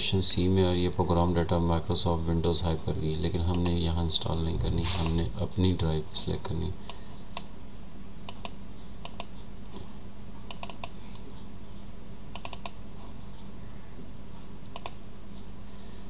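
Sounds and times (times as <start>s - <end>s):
low electrical hum: 0.0s - 16.0s
computer mouse clicking: 8.3s - 9.4s, 10.5s - 11.3s, 12.3s - 12.8s, 14.6s - 15.0s.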